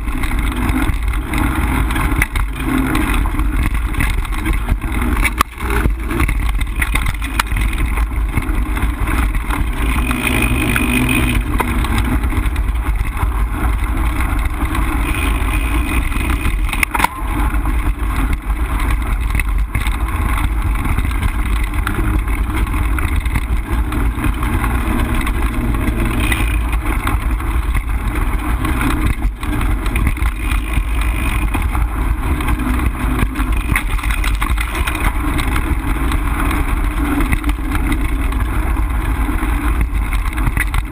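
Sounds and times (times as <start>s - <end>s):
bike clicks and rattles: 0.0s - 40.9s
tyres on dirt: 0.0s - 40.9s
wind rumble on microphone: 0.0s - 40.9s.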